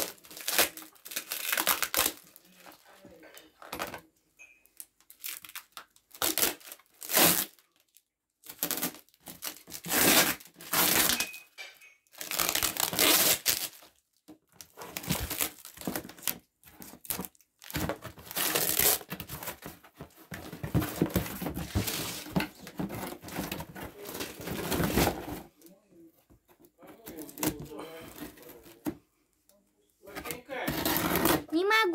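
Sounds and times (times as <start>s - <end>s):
packing tape tearing: 0.0s - 2.7s, 5.1s - 11.3s, 12.1s - 25.4s, 30.7s - 31.5s
cardboard rustling and crinkling: 5.0s - 11.4s, 12.1s - 29.0s, 30.0s - 31.5s.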